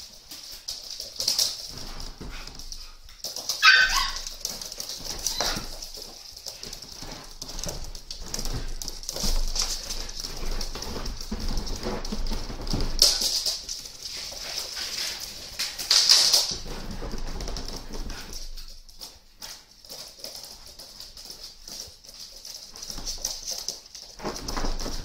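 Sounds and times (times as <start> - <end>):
dog claws clicking on wood floor: 0.0 - 25.0
puppy yelp: 3.5 - 4.4, 5.0 - 5.8.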